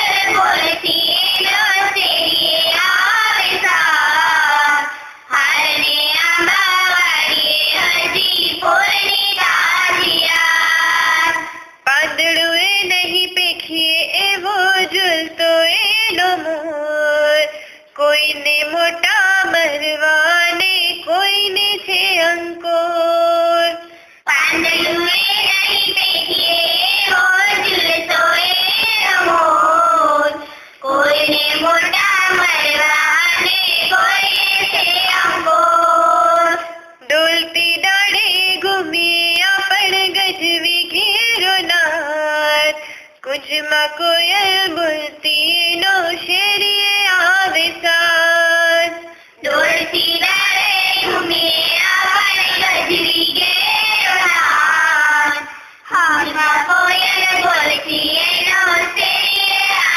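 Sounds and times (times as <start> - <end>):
breaths: 4.9 - 5.3, 17.5 - 18.0, 23.8 - 24.3, 30.4 - 30.9, 42.8 - 43.2, 49.0 - 49.4, 55.5 - 55.9
woman singing: 11.4 - 59.0.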